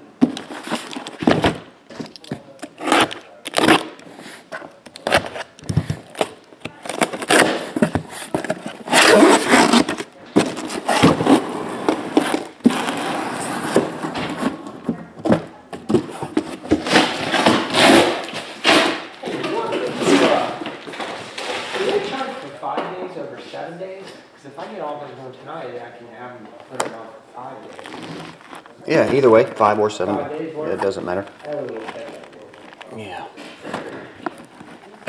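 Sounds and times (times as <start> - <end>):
cardboard scraping and rustling: 0.2 - 22.4, 27.6 - 29.5.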